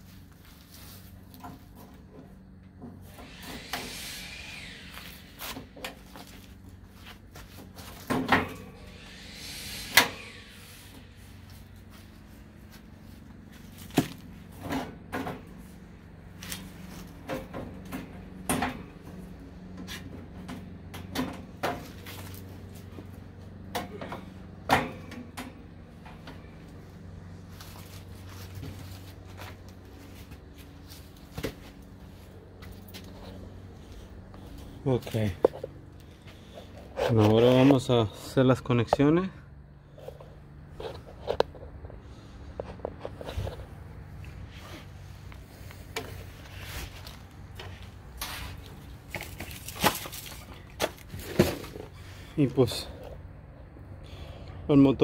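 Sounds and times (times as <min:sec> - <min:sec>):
tools and parts clattering: 0:49.0 - 0:52.0.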